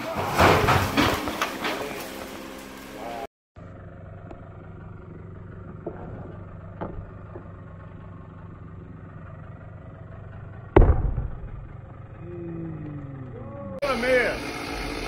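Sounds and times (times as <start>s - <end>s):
engine idling: 0.0s - 15.0s
tree trunk thudding on ground: 10.7s - 11.8s.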